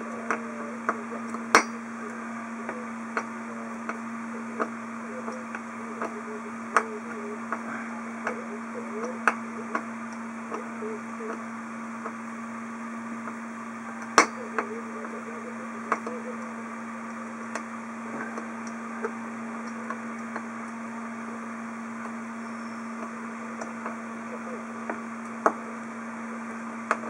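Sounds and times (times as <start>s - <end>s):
steady hum: 0.0s - 27.0s.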